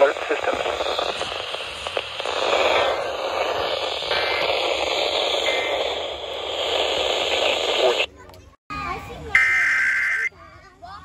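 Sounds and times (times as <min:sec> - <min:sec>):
radio static hiss: 0:00.0 - 0:08.1, 0:09.4 - 0:10.3
faint radio whistles: 0:09.4 - 0:10.4.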